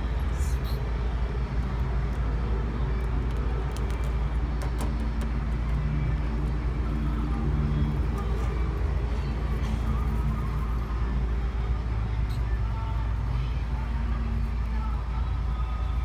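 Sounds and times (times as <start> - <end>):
vehicle engine rumbling: 0.0 - 16.0.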